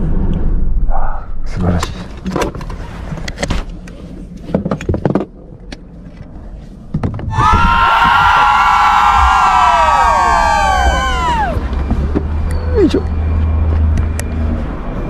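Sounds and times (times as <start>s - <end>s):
low hum: 0.0s - 2.2s
clicks and knocks inside car: 4.4s - 5.8s.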